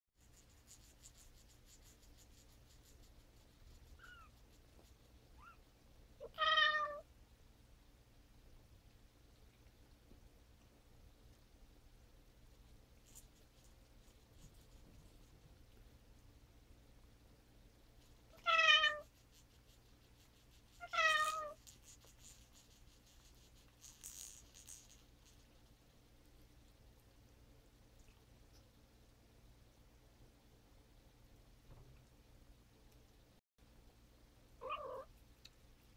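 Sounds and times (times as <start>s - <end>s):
cat meowing: 6.2s - 7.0s, 18.4s - 19.1s, 20.8s - 21.6s, 34.6s - 35.1s
kitten mewing: 34.6s - 35.1s.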